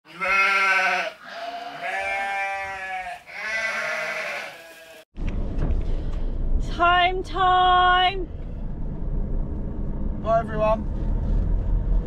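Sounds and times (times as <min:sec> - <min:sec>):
sheep bleating: 0:00.1 - 0:05.1.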